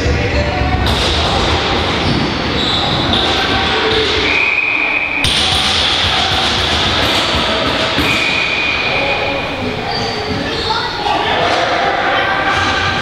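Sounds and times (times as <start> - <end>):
players' voices: 0.0 - 13.0
lacrosse sticks: 0.8 - 9.0.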